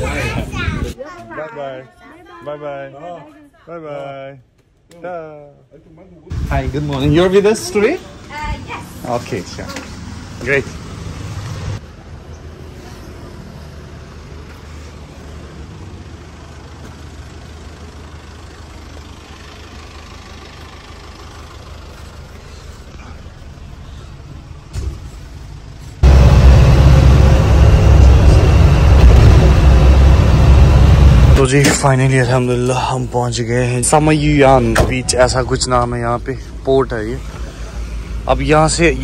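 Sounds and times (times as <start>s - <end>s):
engine and road noise inside van: 6.3s - 39.0s
minivan engine idling: 14.0s - 39.0s.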